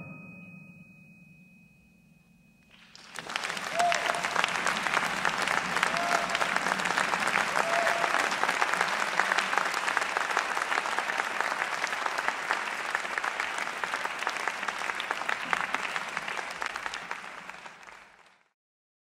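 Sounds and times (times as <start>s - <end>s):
audience applauding: 2.7s - 18.6s.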